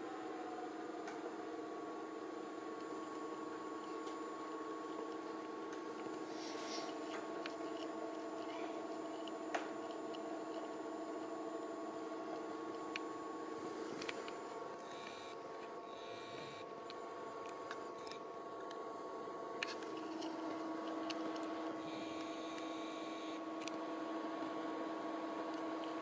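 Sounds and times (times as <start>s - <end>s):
projector cooling fan hum: 0.0s - 26.0s.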